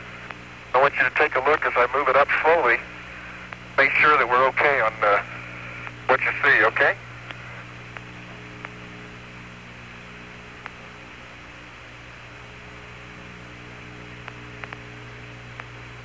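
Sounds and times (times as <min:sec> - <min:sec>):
radio hiss: 0:00.0 - 0:16.0
steady radio hum: 0:00.0 - 0:16.0
faint clicks: 0:14.2 - 0:14.9, 0:15.5 - 0:15.8.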